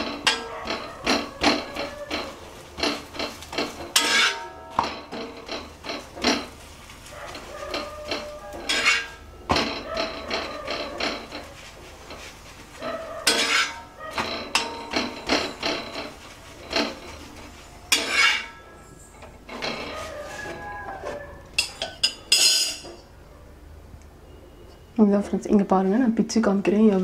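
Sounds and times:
spatula clinking and scraping on pan: 0.0 - 6.7, 7.3 - 18.8, 21.6 - 23.0.

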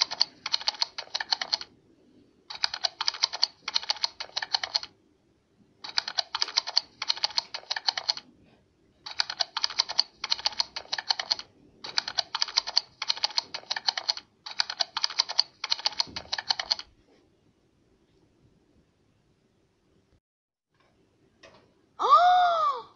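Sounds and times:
computer keyboard typing: 0.0 - 1.7, 2.5 - 4.9, 5.8 - 8.3, 9.1 - 16.9.

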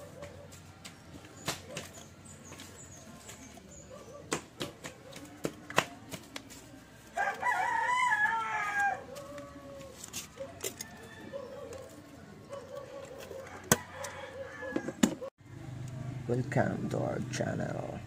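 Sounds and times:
rooster crowing: 7.2 - 10.0, 10.6 - 11.8, 13.4 - 15.0.

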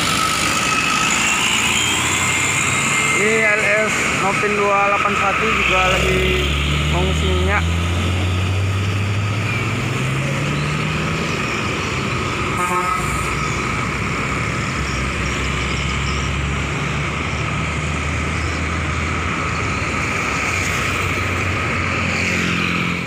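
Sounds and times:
engine revving: 0.0 - 23.0
traffic passing: 0.0 - 23.0
car horn toot: 12.6 - 13.3.

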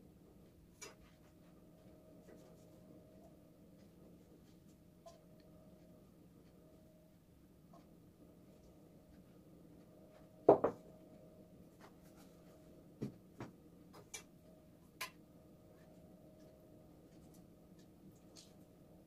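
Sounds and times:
faint steady hum: 0.0 - 19.0
knocks on kitchen counter: 10.5 - 10.8.

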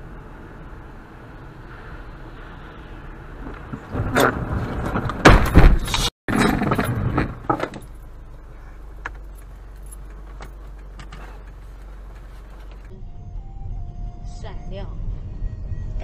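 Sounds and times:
heavy thuds and rattling: 3.4 - 8.1.

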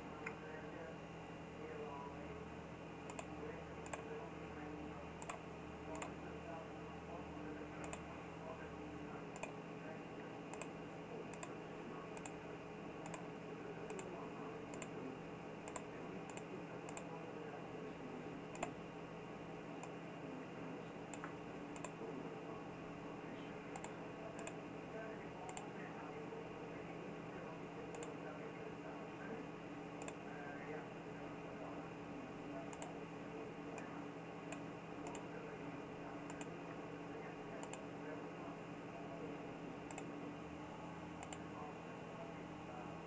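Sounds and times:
electrical hum: 0.0 - 43.0
computer mouse clicking: 3.1 - 4.1, 5.2 - 6.2, 7.8 - 8.1, 9.4 - 9.6, 10.5 - 10.7, 11.3 - 11.6, 13.0 - 13.3, 13.9 - 14.1, 14.7 - 14.9, 15.7 - 17.2, 18.5 - 18.8, 21.1 - 22.0, 23.7 - 24.6, 25.5 - 25.7, 27.9 - 28.2, 30.0 - 30.2, 32.7 - 33.0, 34.5 - 35.3, 36.3 - 36.5, 37.6 - 37.9, 39.9 - 40.1, 41.2 - 41.4.

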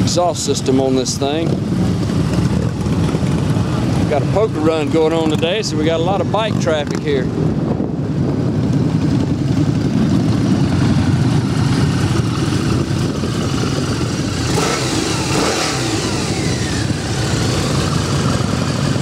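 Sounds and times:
motorcycles revving past: 8.6 - 19.0.

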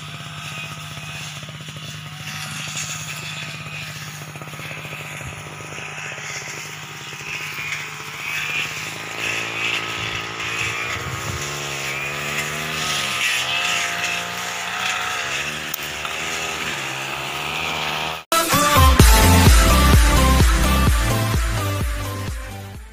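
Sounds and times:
brush cutter engines: 0.0 - 22.9.

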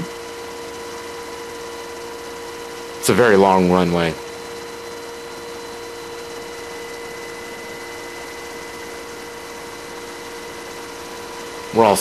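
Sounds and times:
constant whine: 0.0 - 12.0
helicopter cabin rushing noise: 5.6 - 12.0.

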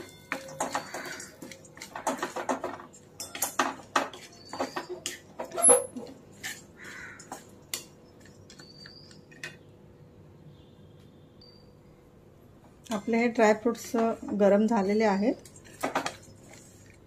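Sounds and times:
spoon scraping an iron pan: 0.0 - 7.5.

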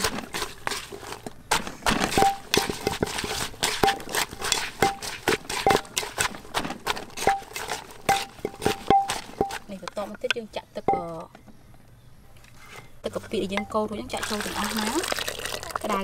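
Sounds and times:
wooden pestle knocking in clay mortar: 1.5 - 11.4.

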